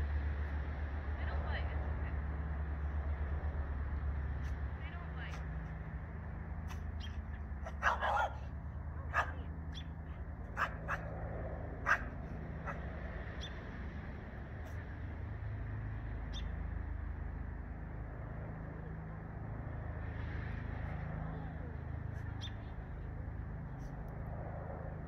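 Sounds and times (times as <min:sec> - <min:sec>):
steady low hum: 0:00.0 - 0:25.0
dog barking: 0:06.7 - 0:09.5, 0:10.5 - 0:11.1, 0:11.8 - 0:12.9.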